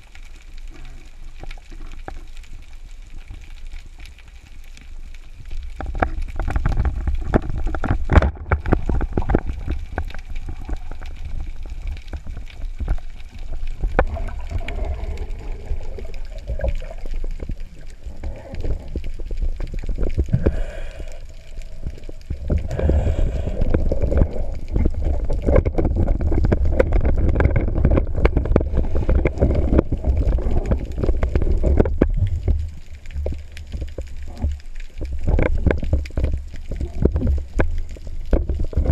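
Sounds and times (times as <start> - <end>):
water rushing and gurgling: 0.0 - 38.9
small knocks and clicks: 3.2 - 17.9, 23.6 - 38.9.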